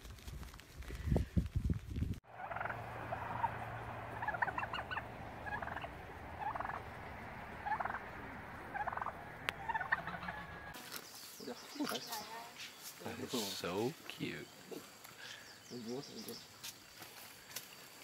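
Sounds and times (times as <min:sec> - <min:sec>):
bird wings beating: 0:00.0 - 0:11.1
turkey gobbling: 0:02.3 - 0:10.8.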